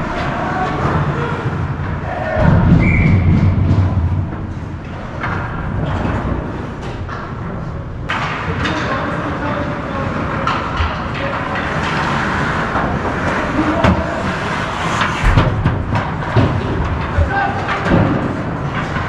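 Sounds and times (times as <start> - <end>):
sticks and puck knocking boards: 10.4 - 19.0.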